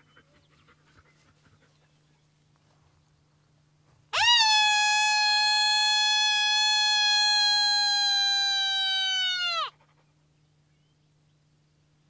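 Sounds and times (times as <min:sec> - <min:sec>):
coyote howl: 0:04.2 - 0:09.7.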